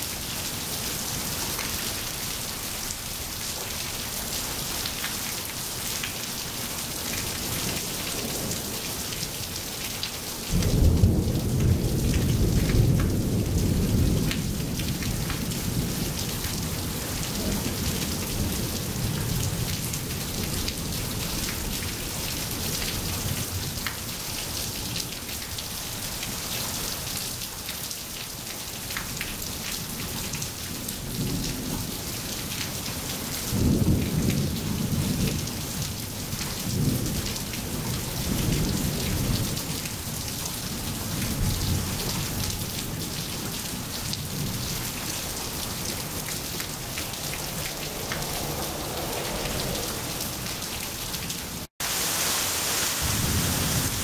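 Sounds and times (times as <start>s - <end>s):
steady rain falling: 0.0s - 54.0s
thunder rumbling: 10.5s - 19.7s, 41.0s - 51.7s.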